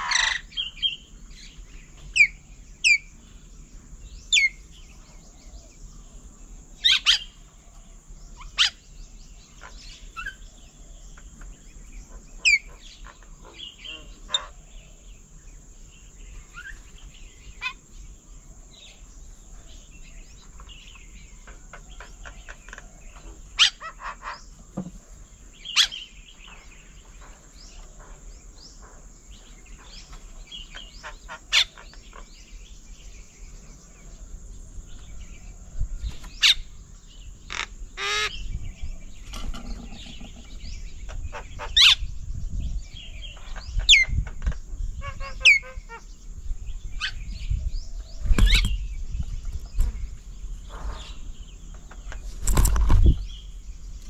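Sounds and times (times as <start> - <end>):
soft bird chirping: 0.0 - 54.0
sharp whistled bird calls: 47.0 - 49.0.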